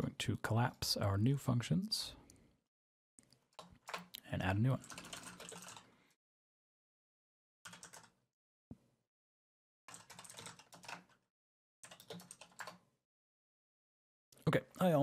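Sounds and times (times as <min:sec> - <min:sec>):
typing on computer keyboard: 0:03.4 - 0:04.1, 0:04.8 - 0:05.9, 0:07.7 - 0:08.2, 0:09.9 - 0:11.2, 0:11.8 - 0:12.8.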